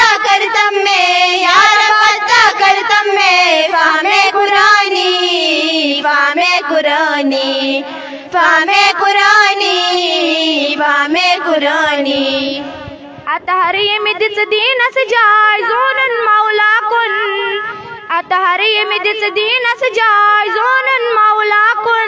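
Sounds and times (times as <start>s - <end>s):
girls singing together: 0.0s - 14.3s.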